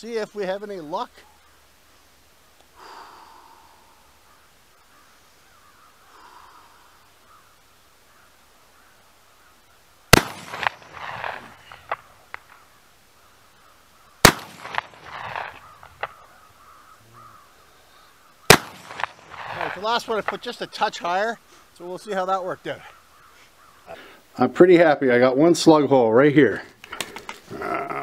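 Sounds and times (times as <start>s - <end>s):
shotgun shots with echo: 10.1s - 12.0s, 14.2s - 16.2s, 18.5s - 19.8s.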